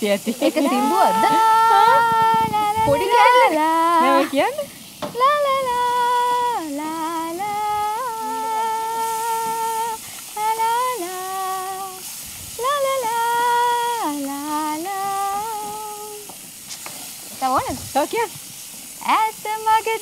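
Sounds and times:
woman humming a melody: 0:00.4 - 0:04.6, 0:05.2 - 0:12.0, 0:12.6 - 0:16.3.

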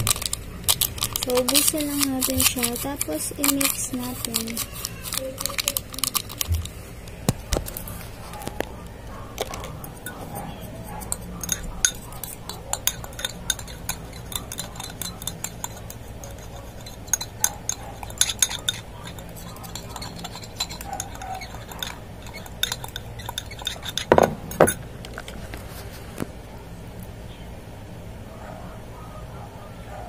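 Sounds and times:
spoon stirring in glass jar: 0:00.0 - 0:06.8, 0:09.3 - 0:25.4.

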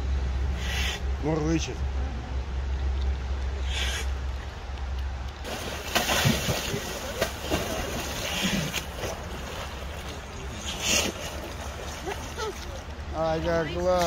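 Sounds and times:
bear splashing through water: 0:05.4 - 0:12.9.

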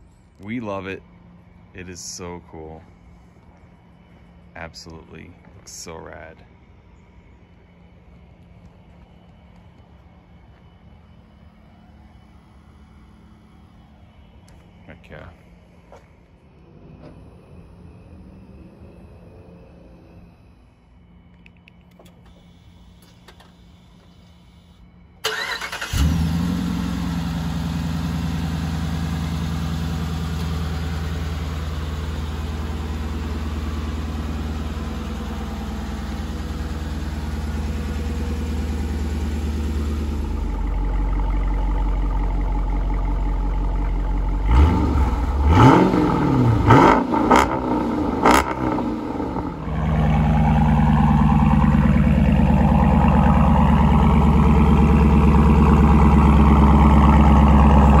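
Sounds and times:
car engine idling: 0:00.0 - 0:58.0
car engine starting: 0:08.1 - 0:58.0
car engine revving: 0:25.3 - 0:58.0.

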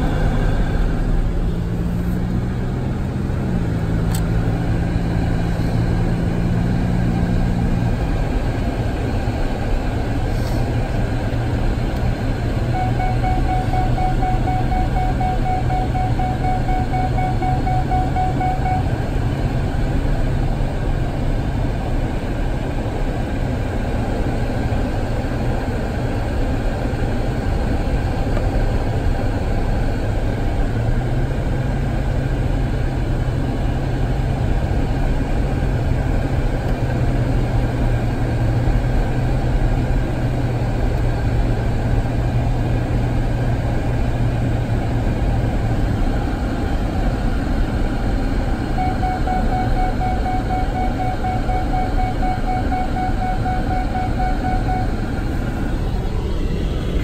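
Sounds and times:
low engine drone: 0:00.0 - 0:57.0
road noise in car cabin: 0:00.0 - 0:57.0
faint steady tone: 0:12.6 - 0:19.6, 0:48.1 - 0:56.3.

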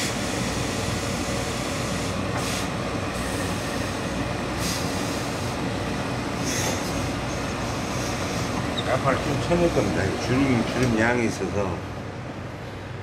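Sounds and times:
steam iron hissing: 0:00.0 - 0:04.0, 0:04.6 - 0:05.6, 0:06.4 - 0:08.6.

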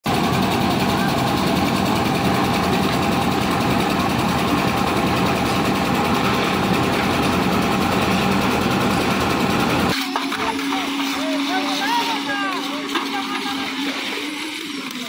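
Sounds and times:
concrete mixer engine running: 0:00.0 - 0:15.0.

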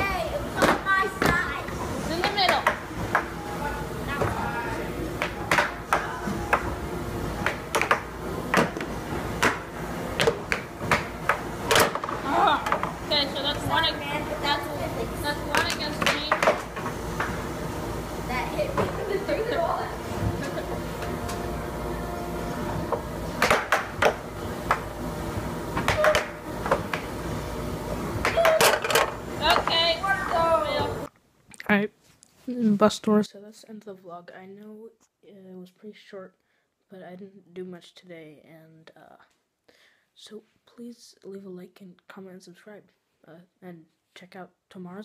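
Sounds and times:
steady low hum: 0:00.0 - 0:31.1
air hockey puck clacking: 0:00.6 - 0:01.4, 0:05.2 - 0:06.7, 0:07.4 - 0:13.0, 0:15.5 - 0:17.4, 0:23.4 - 0:24.9, 0:25.8 - 0:27.1, 0:28.2 - 0:29.8.

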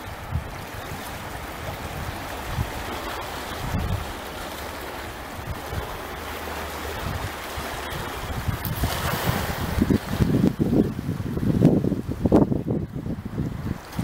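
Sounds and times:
small waves lapping on rocks: 0:00.0 - 0:14.0
wind buffeting microphone: 0:00.0 - 0:14.0.

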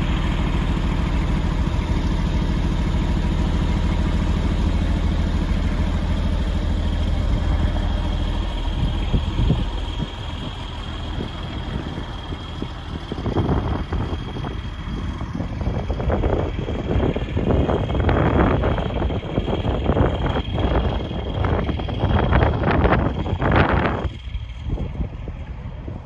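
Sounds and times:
diesel truck engine idling: 0:00.0 - 0:26.0
wind on microphone: 0:07.1 - 0:26.0.

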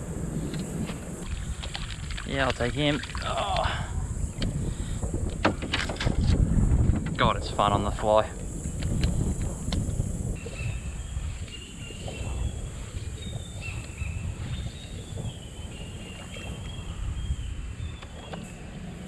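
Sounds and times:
wind rumble on microphone: 0:00.0 - 0:19.0
water lapping at hull: 0:01.2 - 0:06.2.

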